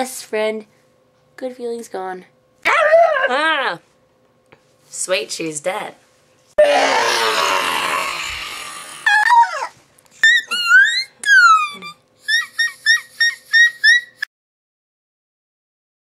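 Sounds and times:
loud scream: 0:06.6 - 0:11.8.

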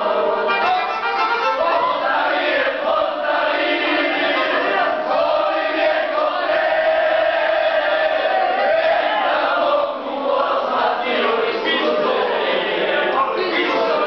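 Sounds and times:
instrumental music: 0:00.0 - 0:07.8
crowd singing together: 0:00.0 - 0:14.0.

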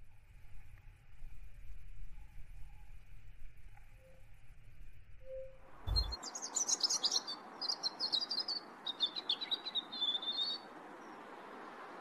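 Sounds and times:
robin singing: 0:05.3 - 0:11.3
low thump: 0:05.8 - 0:06.2.

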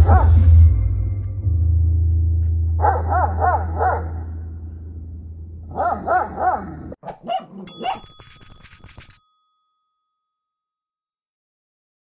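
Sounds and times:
dog barking: 0:00.0 - 0:00.4, 0:02.8 - 0:04.3, 0:05.7 - 0:08.1.

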